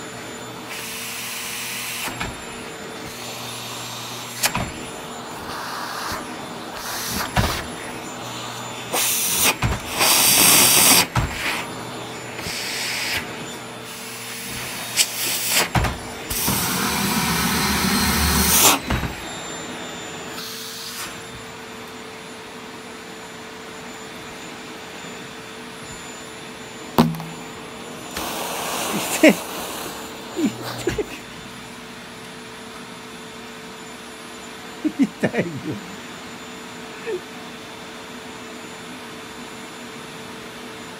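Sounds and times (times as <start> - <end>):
stick vacuum cleaner running: 0.0 - 40.9
sharp knocks: 27.0 - 27.4.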